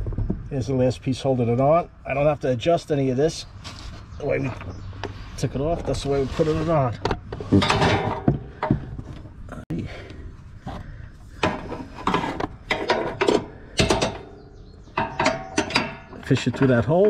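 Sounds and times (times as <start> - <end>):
metal rod scraping and knocking: 5.8 - 9.1, 11.3 - 17.0.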